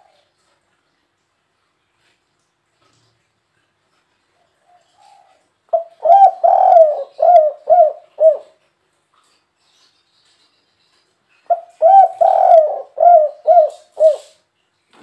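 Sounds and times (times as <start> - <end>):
dove cooing: 4.6 - 8.6, 11.5 - 14.4.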